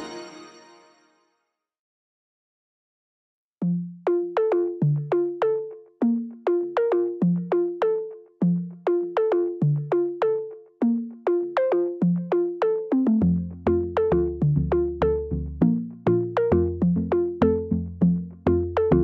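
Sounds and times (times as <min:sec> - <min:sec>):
plucked synthesizer melody: 0:11.2 - 0:19.0
low bass and beat: 0:13.2 - 0:19.0.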